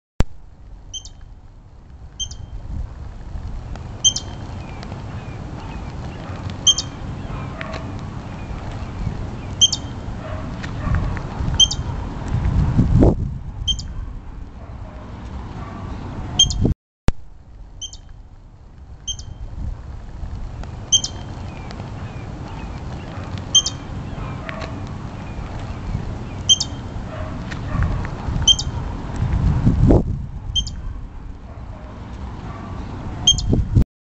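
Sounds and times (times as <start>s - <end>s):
high-pitched chirps: 0.9s - 1.2s, 2.2s - 2.5s, 6.7s - 7.0s, 11.6s - 11.9s, 13.7s - 14.0s, 16.4s - 16.7s, 17.8s - 18.1s, 19.1s - 19.4s, 23.5s - 23.9s, 26.5s - 26.8s, 30.6s - 30.8s, 33.2s - 33.6s
low rumble: 7.0s - 16.4s, 17.1s - 32.4s.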